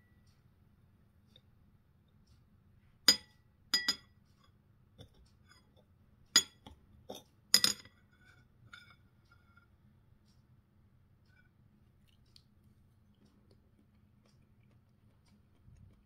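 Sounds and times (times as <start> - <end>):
cutlery clinking on plate: 3.1 - 4.1, 6.4 - 9.0.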